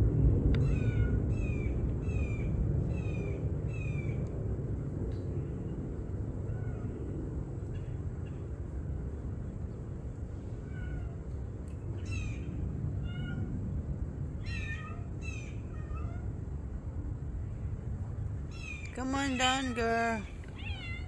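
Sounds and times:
low background rumble: 0.0s - 21.0s
cat meowing: 13.0s - 13.5s, 19.3s - 21.0s.

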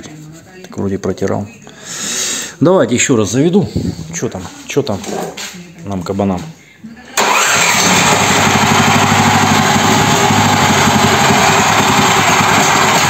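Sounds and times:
petrol engine starting and running: 7.2s - 13.0s.

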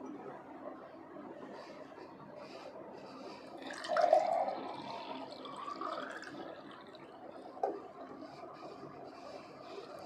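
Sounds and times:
water pouring into glass: 3.6s - 7.2s.

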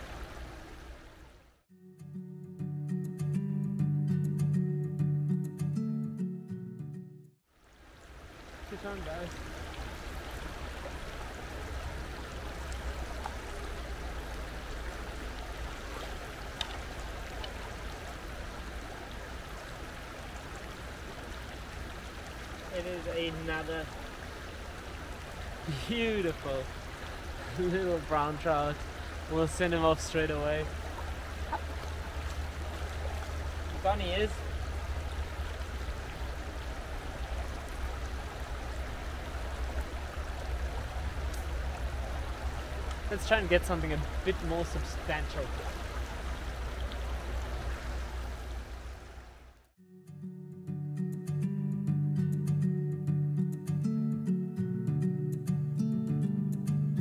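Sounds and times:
stream flowing: 0.0s - 1.7s, 7.4s - 49.7s.

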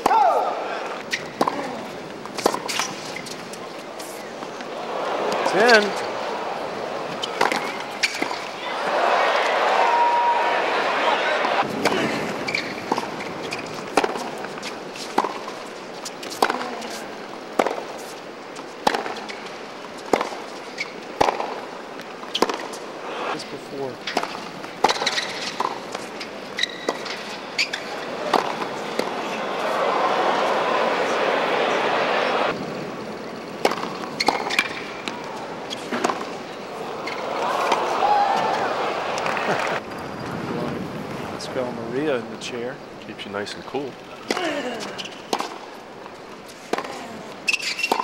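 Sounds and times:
tennis ball bouncing: 1.0s - 3.4s, 7.0s - 8.5s, 11.4s - 15.6s, 16.2s - 17.9s, 18.8s - 19.4s, 20.0s - 22.8s, 24.0s - 32.5s, 33.6s - 36.4s, 37.0s - 39.8s, 44.2s - 48.0s
crowd murmur: 3.8s - 12.4s, 27.9s - 33.1s, 35.0s - 42.1s, 46.6s - 47.5s
tennis ball struck by racquet: 7.2s - 8.4s, 13.9s - 14.4s, 21.2s - 21.6s, 22.4s - 22.7s, 28.2s - 29.8s, 33.6s - 36.3s.

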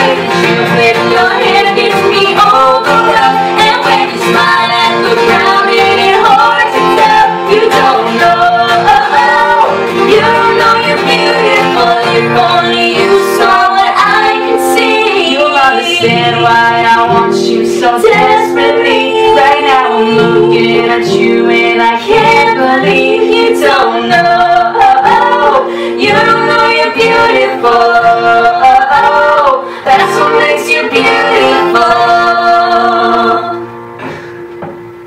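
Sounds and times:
man and woman singing duet: 0.0s - 34.1s
strummed acoustic guitar: 0.0s - 35.0s.

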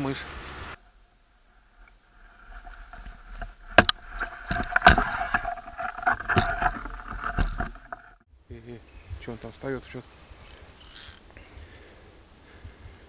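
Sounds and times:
sharp knocks: 2.4s - 8.1s.

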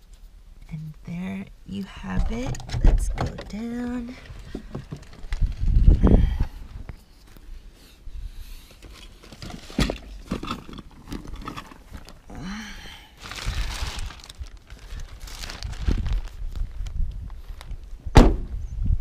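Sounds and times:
rustling and handling noise: 2.0s - 12.4s, 13.1s - 17.9s.

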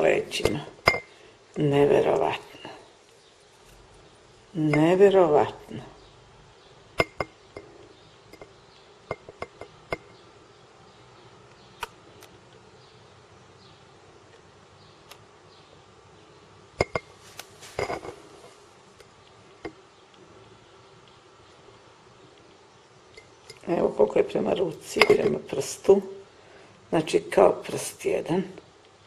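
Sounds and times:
moth tapping against glass jar: 7.0s - 10.2s, 16.8s - 17.2s, 23.1s - 23.7s, 24.9s - 25.5s.

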